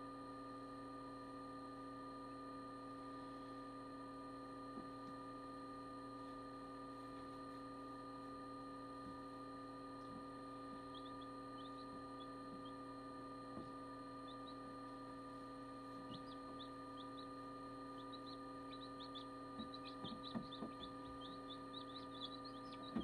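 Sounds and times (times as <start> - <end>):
incubator humming: 0.0 - 23.0
chicks peeping: 10.0 - 12.8, 13.5 - 15.0, 15.9 - 23.0.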